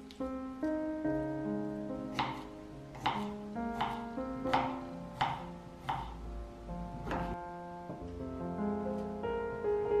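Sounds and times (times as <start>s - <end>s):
soft piano music: 0.0s - 10.0s
knife slicing on cutting board: 3.0s - 4.0s.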